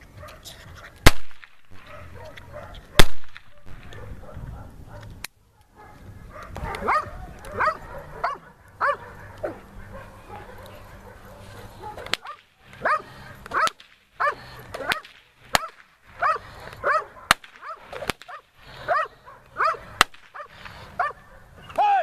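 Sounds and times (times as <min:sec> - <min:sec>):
dog barking: 0:00.2 - 0:00.9, 0:01.8 - 0:15.0, 0:15.6 - 0:21.6
sharp whip cracks: 0:01.0 - 0:01.8, 0:03.0 - 0:04.0, 0:12.0 - 0:14.0, 0:14.7 - 0:16.0, 0:17.3 - 0:18.5, 0:20.0 - 0:20.8.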